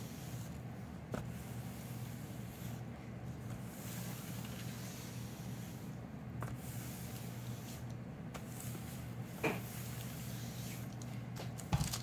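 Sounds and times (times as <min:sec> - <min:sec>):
iron swishing over paper: 0:00.0 - 0:11.6
steady low hum: 0:00.0 - 0:12.0.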